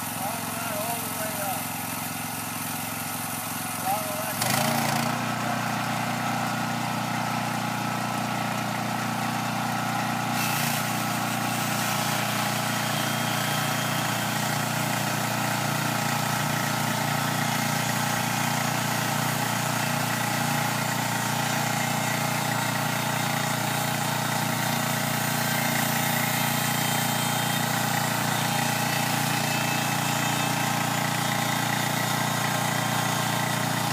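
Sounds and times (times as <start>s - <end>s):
band saw cutting log: 0.0s - 33.9s
small gasoline engine running: 0.0s - 33.9s.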